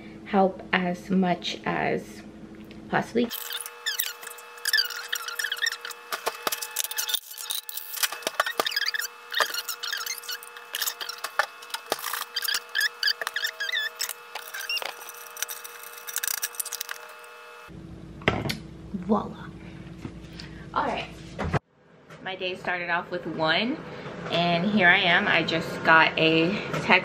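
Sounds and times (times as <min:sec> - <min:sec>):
steady hum: 0:00.0 - 0:21.6
high wavering chirps: 0:03.3 - 0:17.3.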